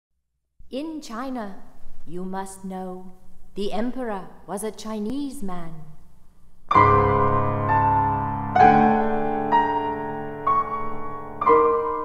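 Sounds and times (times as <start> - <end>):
piano chords: 6.7 - 12.0.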